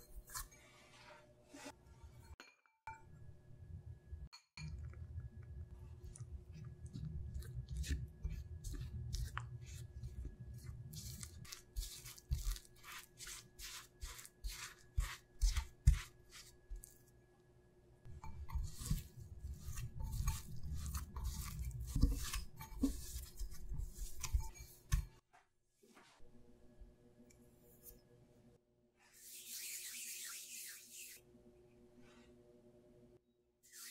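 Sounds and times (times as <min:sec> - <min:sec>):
spatula scraping glass bowl: 0:00.0 - 0:02.4, 0:06.6 - 0:16.9, 0:18.2 - 0:25.1
hands kneading dough: 0:05.9 - 0:17.2, 0:18.3 - 0:25.2.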